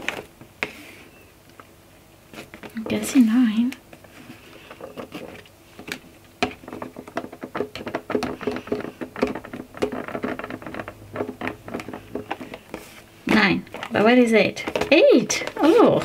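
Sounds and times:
fingernails tapping on cardboard: 0:04.8 - 0:12.9.

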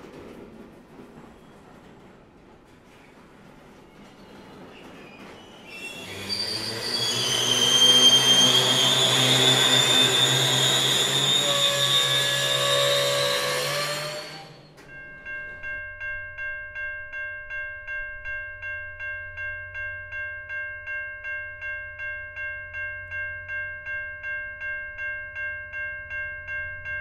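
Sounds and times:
low train rumble: 0:00.0 - 0:19.8
train wheels squealing: 0:01.1 - 0:02.1, 0:02.9 - 0:14.9
music with pulsing chiming beat: 0:14.9 - 0:27.0.

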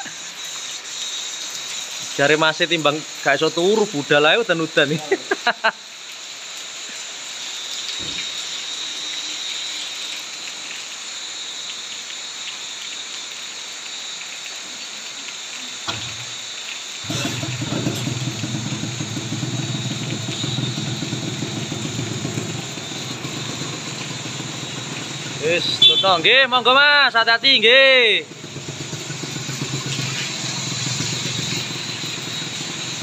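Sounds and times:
steady rain hiss: 0:00.0 - 0:33.0
motorcycle engine starting and idling: 0:15.9 - 0:16.4, 0:17.0 - 0:25.7, 0:28.2 - 0:33.0.

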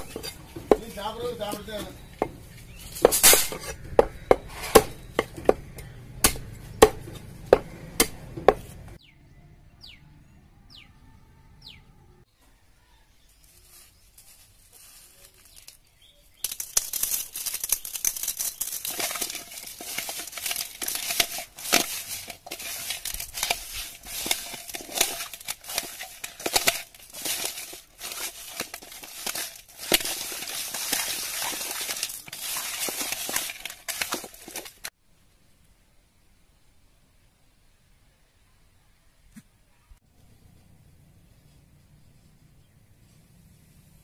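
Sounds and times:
hands squishing raw fish: 0:16.5 - 0:34.9.

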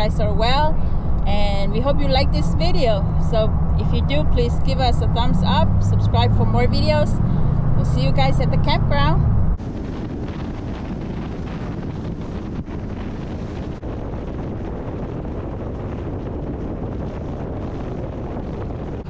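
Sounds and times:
car road and wind noise: 0:00.0 - 0:19.0
wind rumbling on microphone: 0:00.0 - 0:19.0.

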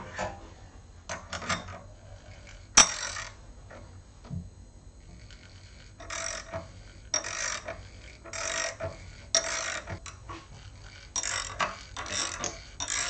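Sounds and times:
tap grating threads into steel: 0:02.7 - 0:03.4, 0:05.1 - 0:13.0.

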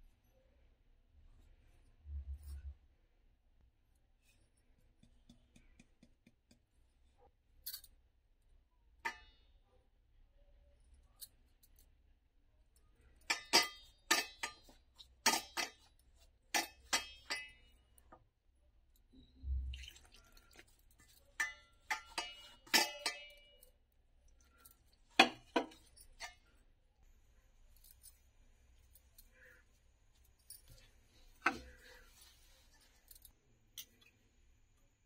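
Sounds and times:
metal clinks on steel bowl: 0:21.3 - 0:23.6.

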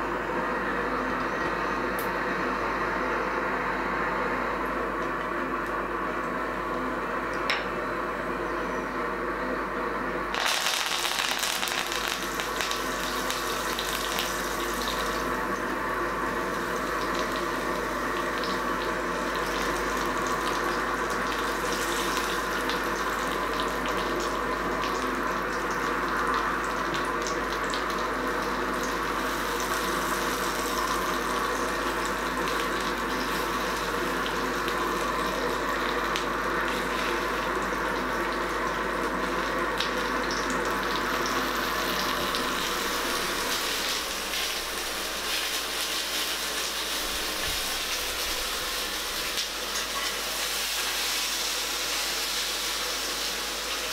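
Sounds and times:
hot oil sizzling in a skillet: 0:10.3 - 0:53.9.

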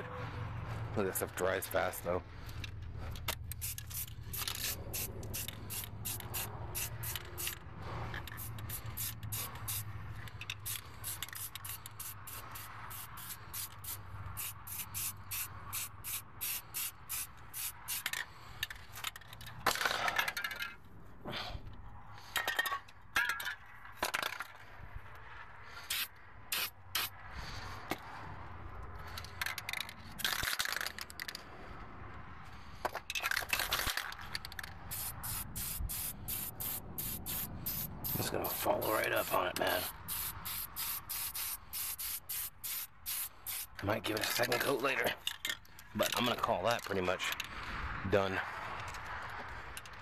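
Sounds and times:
spray can ball rattling: 0:03.2 - 0:20.6, 0:25.9 - 0:27.1, 0:29.4 - 0:31.4, 0:33.3 - 0:44.7
spray can hissing: 0:03.5 - 0:07.6, 0:08.2 - 0:09.9, 0:10.5 - 0:18.1, 0:25.9 - 0:27.1, 0:34.9 - 0:43.8.

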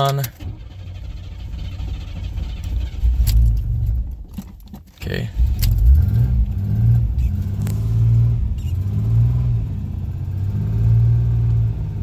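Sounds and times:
car engine revving: 0:05.2 - 0:12.0.

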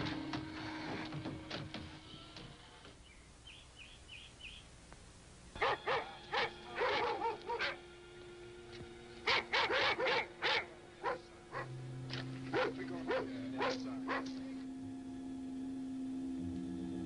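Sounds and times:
dogs barking: 0:05.6 - 0:07.9, 0:09.2 - 0:14.6.

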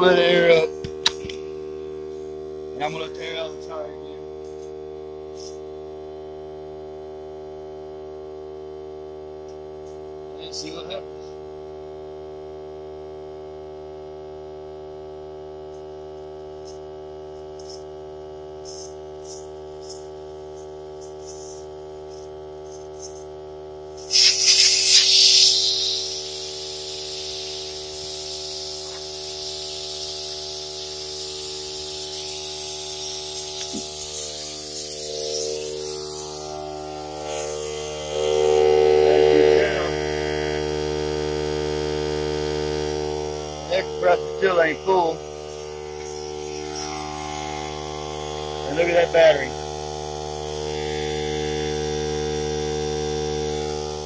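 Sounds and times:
air compressor humming: 0:00.0 - 0:54.0
air hissing from tyre valve: 0:18.6 - 0:38.1.

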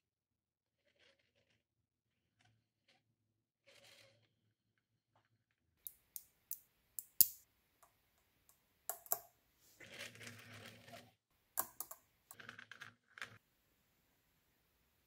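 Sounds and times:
balls scraping against balls: 0:00.8 - 0:05.5, 0:09.0 - 0:13.4
magnet balls clicking together: 0:05.8 - 0:07.4, 0:11.6 - 0:12.0.

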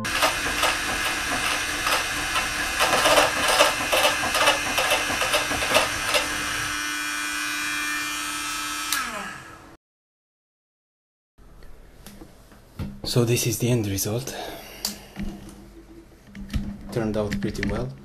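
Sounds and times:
router bit cutting metal chatter: 0:00.0 - 0:09.4.

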